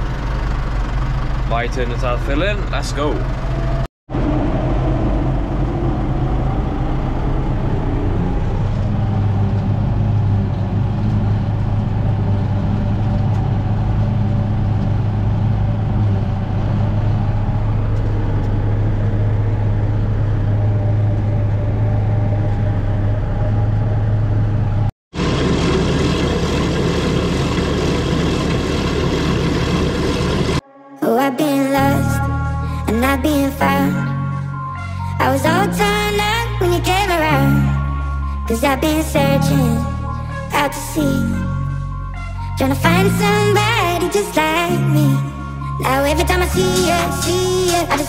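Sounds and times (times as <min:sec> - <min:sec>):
tractor engine running: 0:00.0 - 0:30.6
forage harvester blowing grass: 0:25.2 - 0:30.6.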